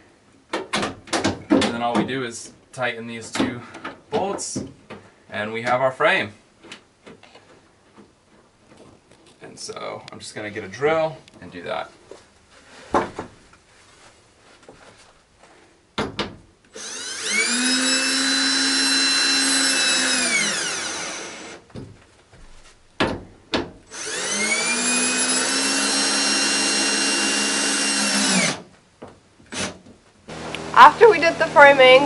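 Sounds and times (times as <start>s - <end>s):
cordless drill motor whine: 16.7s - 21.6s, 23.9s - 28.6s.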